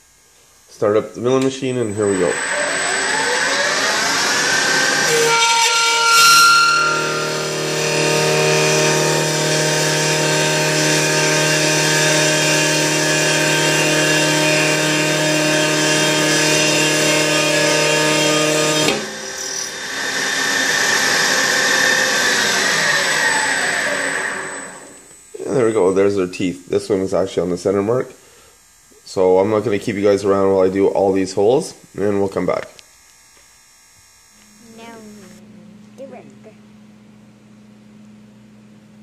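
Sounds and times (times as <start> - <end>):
milling machine cutting metal: 1.4 - 26.0.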